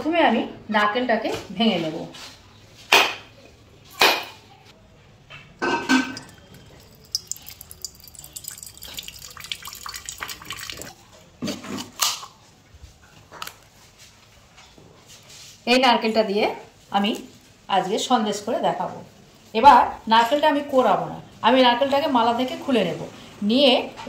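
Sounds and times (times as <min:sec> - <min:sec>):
water dripping into steel bowl: 0:05.6 - 0:10.9.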